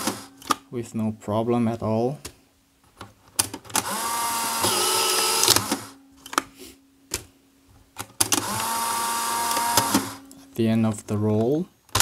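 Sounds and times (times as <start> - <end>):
camera motor whirring: 3.8 - 5.9, 8.4 - 10.2.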